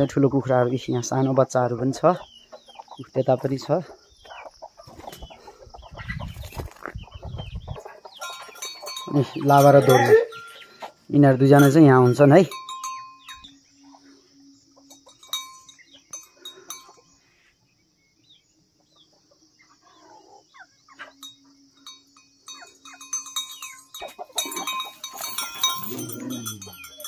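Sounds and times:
chains rattling on concrete: 8.2s - 10.8s, 11.4s - 13.5s, 14.9s - 17.1s, 21.2s - 27.0s
dog collar bells clanking: 8.2s - 10.8s, 11.4s - 13.6s, 14.8s - 17.2s, 21.2s - 27.0s.

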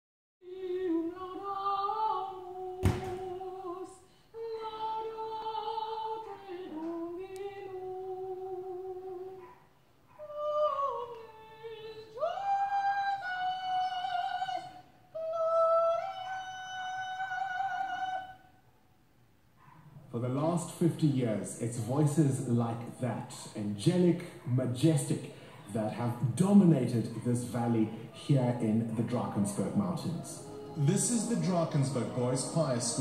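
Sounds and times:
classical solo voice singing: 0.4s - 9.4s, 10.2s - 18.4s, 29.4s - 33.0s.

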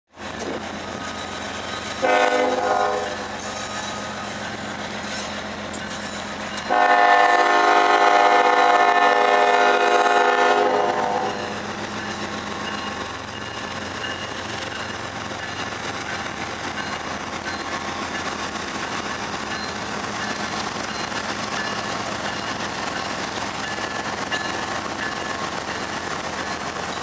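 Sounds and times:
train rolling: 0.1s - 27.0s
locomotive air horn blasts: 2.0s - 3.3s, 6.7s - 11.4s.

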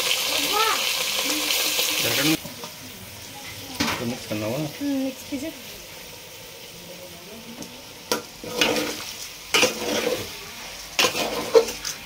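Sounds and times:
faint frying sizzle: 0.0s - 12.0s
metal spoon scraping pot: 8.4s - 10.3s, 11.0s - 12.0s.

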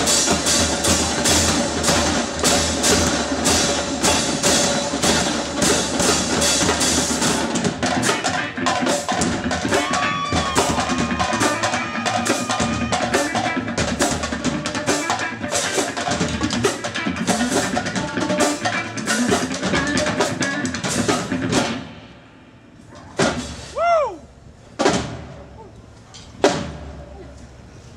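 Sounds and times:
bass drums: 0.0s - 21.9s
snare drums: 0.0s - 22.0s, 23.1s - 23.9s, 24.8s - 25.4s, 26.4s - 27.0s.

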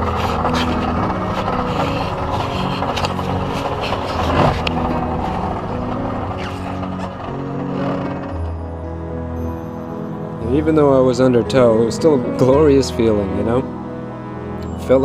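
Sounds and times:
wind noise: 0.0s - 8.4s
outboard motor running: 0.0s - 10.0s.

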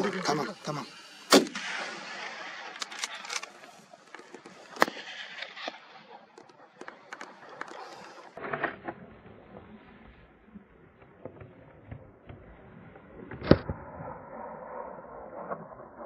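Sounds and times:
rifle shot: 1.3s - 3.7s.

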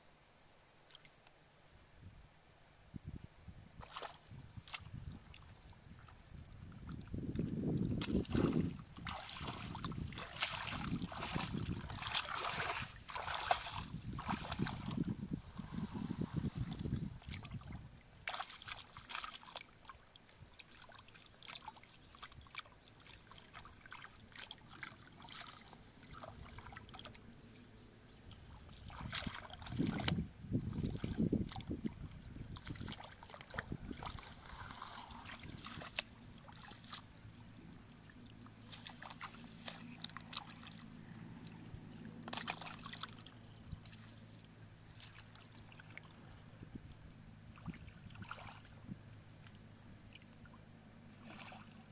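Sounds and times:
muddy water splashing: 3.8s - 51.9s.

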